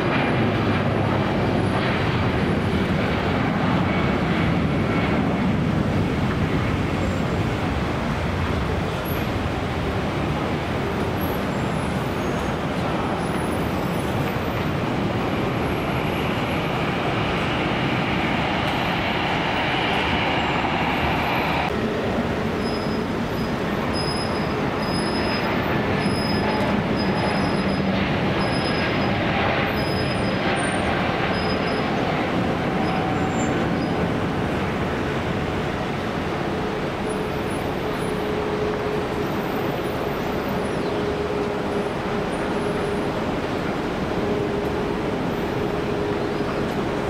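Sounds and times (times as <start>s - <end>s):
jet engines roaring: 0.0s - 47.0s.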